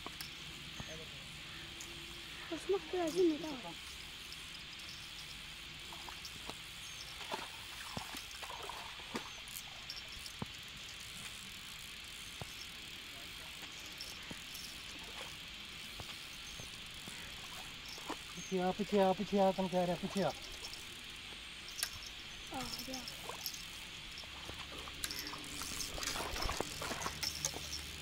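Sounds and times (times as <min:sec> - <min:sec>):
steady high hiss: 0:00.0 - 0:28.0
faint clicks and ticks: 0:09.1 - 0:28.0.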